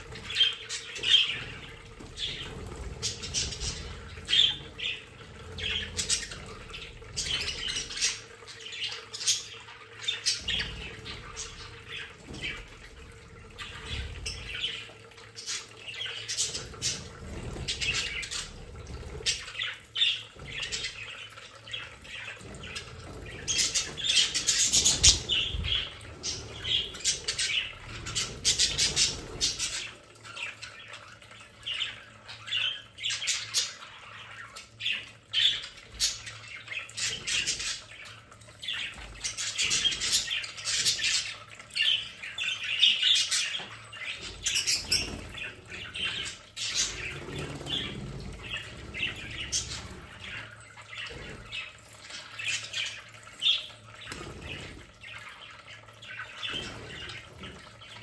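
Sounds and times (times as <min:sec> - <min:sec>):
budgerigars chattering and squawking: 0:00.0 - 0:31.0, 0:31.7 - 0:58.0.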